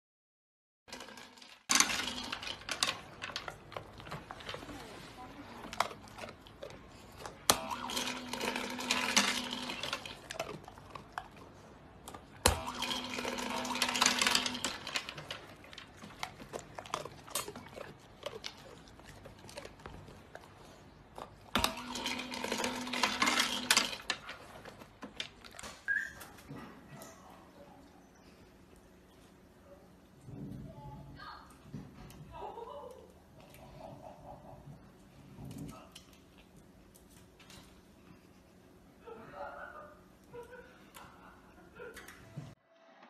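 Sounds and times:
kibble rattling into tray: 0.9 - 4.7, 7.6 - 10.6, 12.5 - 18.4, 21.6 - 25.3.

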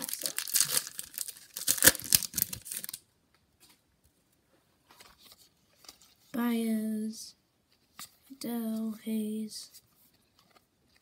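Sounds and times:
wrapper tearing and crinkling: 0.0 - 3.0.

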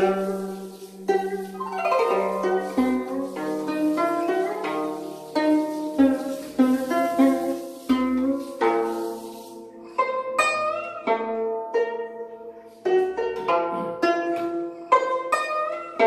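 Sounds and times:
plucked zither melody: 0.0 - 16.0.

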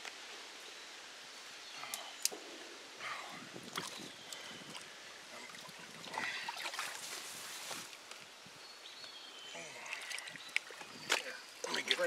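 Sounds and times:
stream running: 3.2 - 8.1, 9.3 - 12.0
water sloshing and splashing: 3.6 - 7.9, 9.7 - 12.0.

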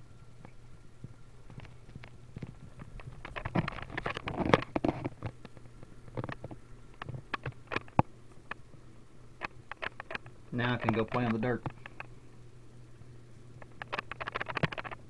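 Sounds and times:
scattered clicks: 1.5 - 8.7, 9.4 - 12.2, 13.5 - 15.0.

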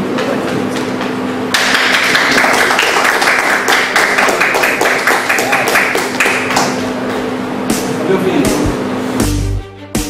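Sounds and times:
people applauding: 1.5 - 7.0.

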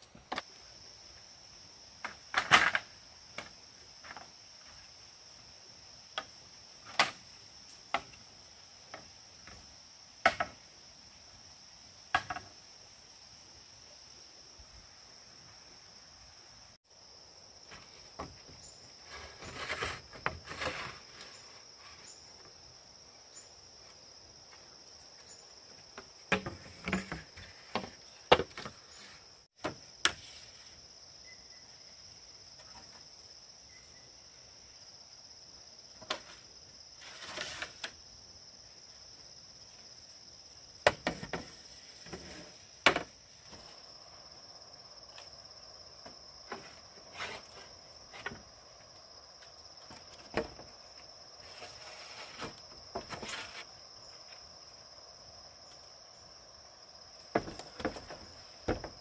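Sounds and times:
high insect chirring: 41.5 - 59.0.

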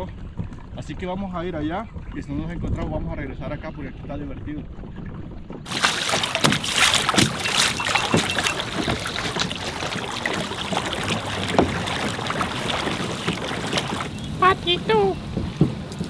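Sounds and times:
water splashing against kayak: 5.7 - 16.0.

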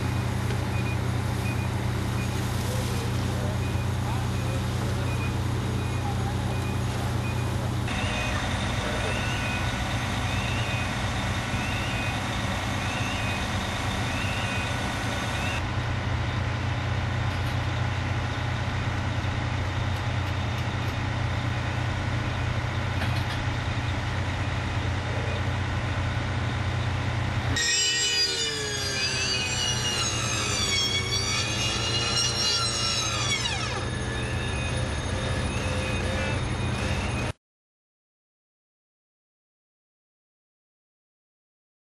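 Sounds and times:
truck reversing beeper: 0.0 - 15.6, 26.6 - 37.4
diesel engines running: 0.0 - 37.4
siren wailing: 7.9 - 15.6, 27.6 - 37.4.

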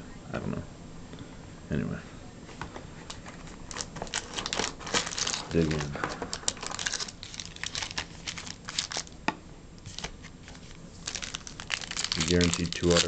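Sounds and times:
foil packs crinkling: 3.7 - 9.2, 9.8 - 13.0.

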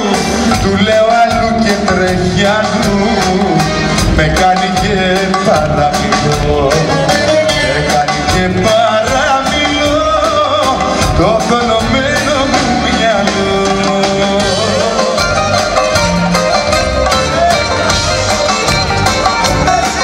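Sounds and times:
man singing into microphone: 0.0 - 15.7
band playing with drum beat: 0.0 - 20.0.

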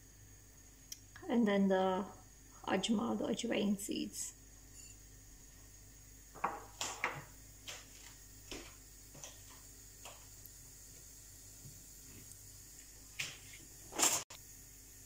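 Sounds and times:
seeds popping in hot oil: 6.2 - 15.0.

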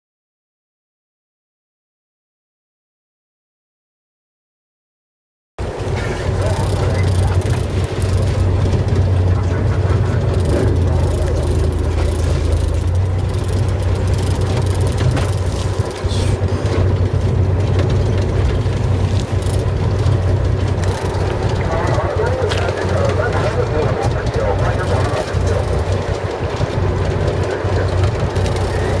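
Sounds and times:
boat engine humming: 5.6 - 29.0
water noise: 5.6 - 29.0
wind: 5.6 - 29.0.

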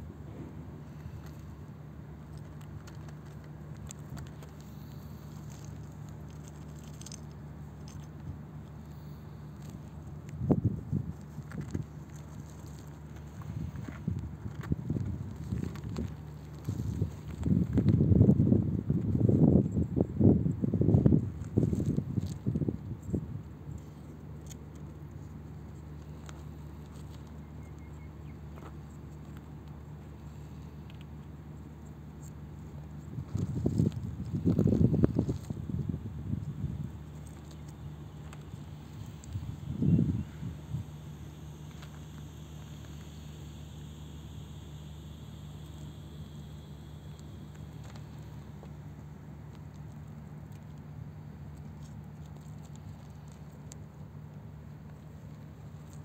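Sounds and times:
claws scrabbling over gravel: 0.0 - 56.0
steady low hum: 0.0 - 56.0
small stones clicking: 2.3 - 9.0.

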